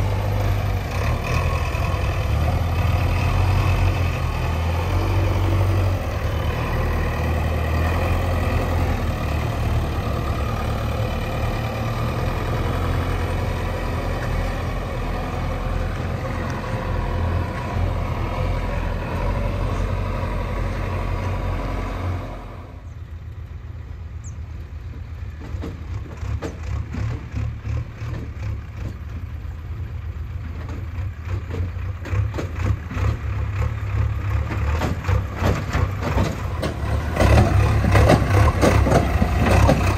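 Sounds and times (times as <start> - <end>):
diesel engines droning: 0.0 - 39.9.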